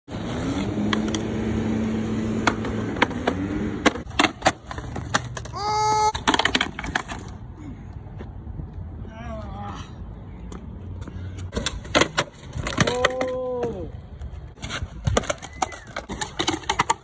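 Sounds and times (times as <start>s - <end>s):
skateboard wheels rolling on concrete: 0.1s - 17.0s
skateboard popping cracks: 0.2s - 1.5s, 2.3s - 7.4s, 11.5s - 17.0s
skateboard clattering on concrete: 2.4s - 7.3s, 11.5s - 13.8s, 14.6s - 17.0s.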